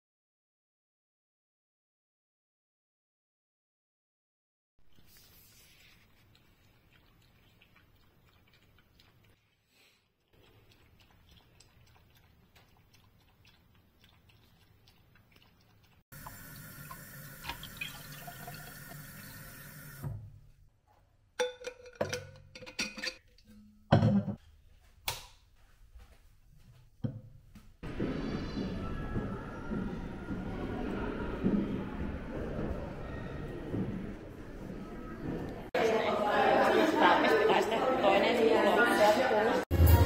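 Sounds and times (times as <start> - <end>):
water running: 10.3 - 20.4
kitchenware clinking and knocking: 21.4 - 24.4.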